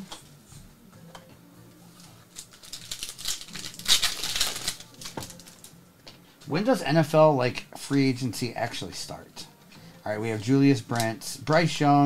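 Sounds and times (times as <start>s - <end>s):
foil wrapper crinkling and tearing: 2.4s - 5.7s.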